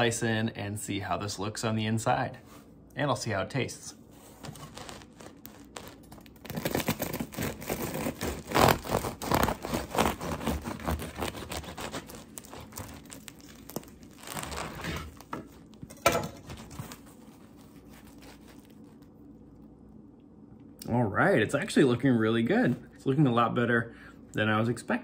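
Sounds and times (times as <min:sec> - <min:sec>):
knife crunching through bread crust: 0:04.3 - 0:19.2.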